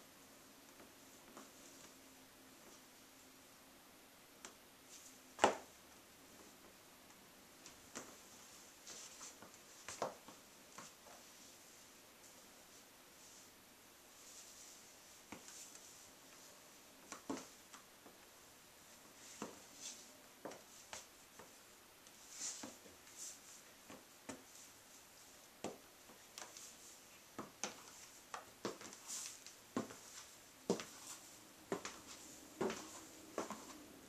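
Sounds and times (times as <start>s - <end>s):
high heels clicking on tile: 29.8s - 33.8s.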